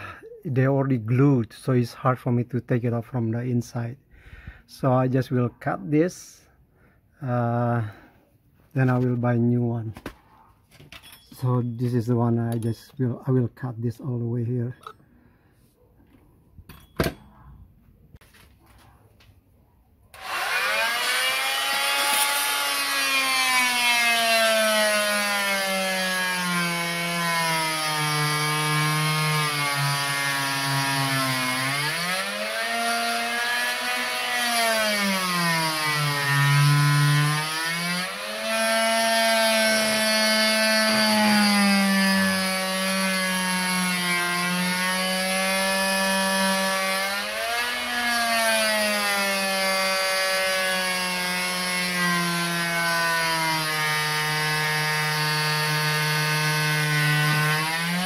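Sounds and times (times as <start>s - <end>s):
oscillating multi-tool buzzing: 20.1s - 48.1s.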